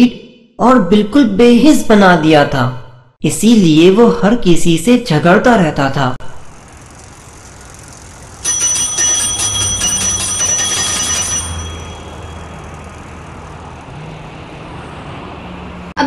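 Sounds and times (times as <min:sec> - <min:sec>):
bicycle bell ringing: 0:06.7 - 0:13.9.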